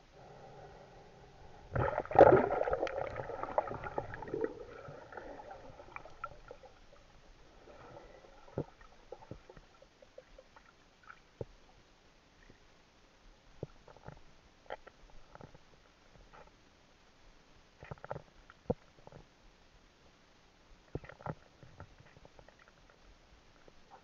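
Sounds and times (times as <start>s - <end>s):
underwater bubbling water: 1.4s - 11.8s
faint underwater clicks and knocks: 1.7s - 12.7s, 13.4s - 16.8s, 17.8s - 19.4s, 20.8s - 24.0s.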